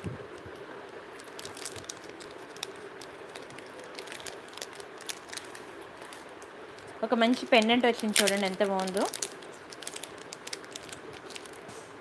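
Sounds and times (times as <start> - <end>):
plastic packets crinkling: 1.1 - 11.7.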